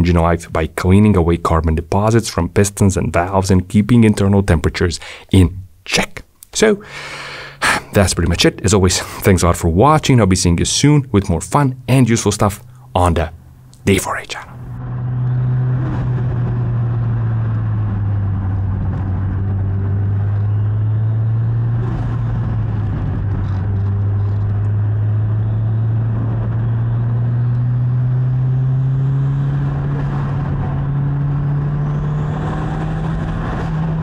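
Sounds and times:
road noise: 0:00.0 - 0:05.5, 0:06.7 - 0:34.0
car engine drone: 0:06.8 - 0:09.8, 0:11.3 - 0:34.0.

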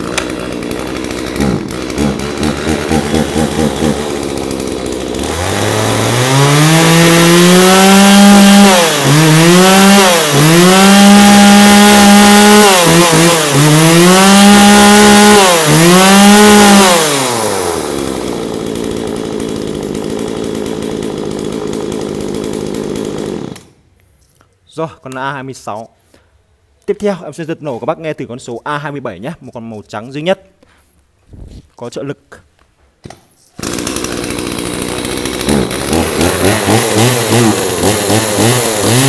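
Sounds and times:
chainsaw idling and revving: 0:00.0 - 0:23.8, 0:33.6 - 0:39.0.

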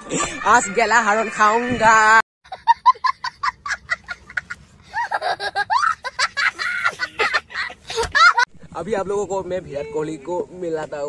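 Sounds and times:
young child laughing: 0:02.5 - 0:08.5.

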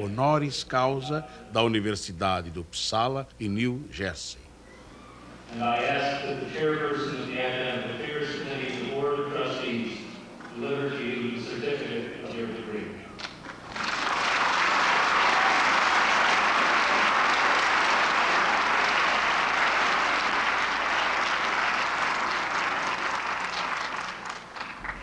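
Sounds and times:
large audience applauding: 0:13.2 - 0:25.0.

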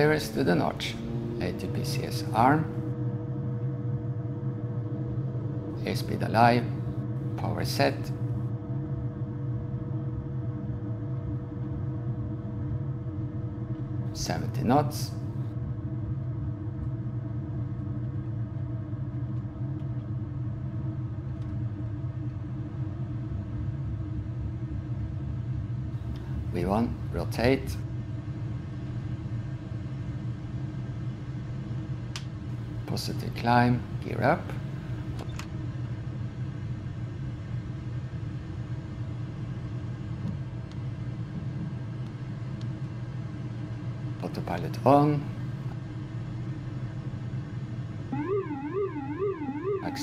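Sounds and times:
low rumble: 0:00.0 - 0:26.6
turboprop engines droning: 0:00.0 - 0:50.0.

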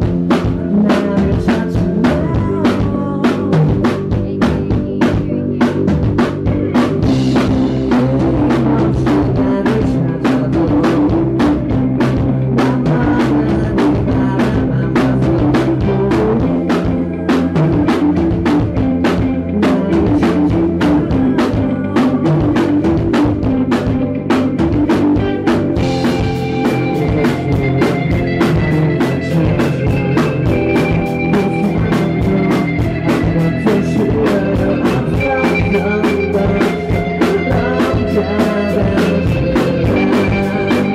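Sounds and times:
drum kit beat: 0:00.0 - 0:40.9
rock band playing loud: 0:00.0 - 0:40.9.

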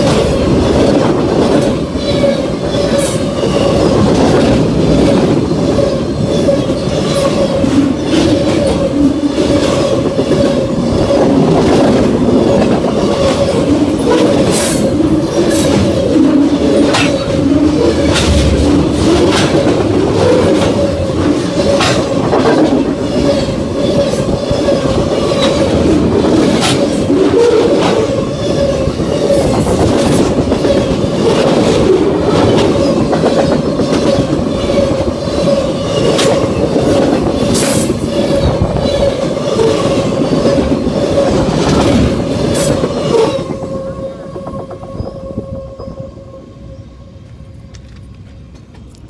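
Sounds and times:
freight train wheels rumbling: 0:00.0 - 0:49.0
high ringing tone: 0:43.1 - 0:47.6.

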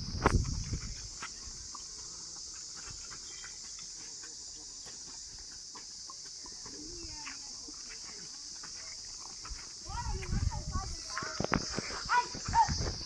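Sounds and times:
high-pitched insect chorus: 0:00.0 - 0:13.0
hooves tapping on dirt: 0:00.0 - 0:13.0.

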